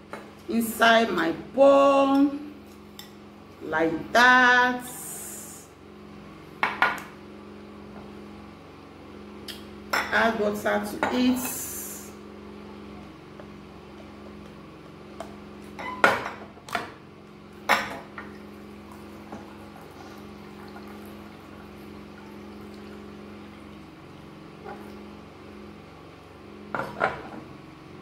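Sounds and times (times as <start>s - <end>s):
water pouring into a glass bowl: 18.9s - 23.9s.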